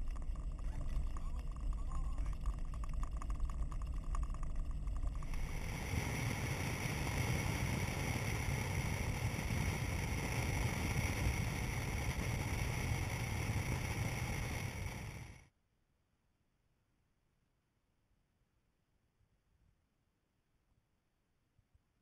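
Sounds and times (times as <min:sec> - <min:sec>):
vehicle driving on dirt road: 0:00.0 - 0:15.4
wind: 0:00.0 - 0:15.6.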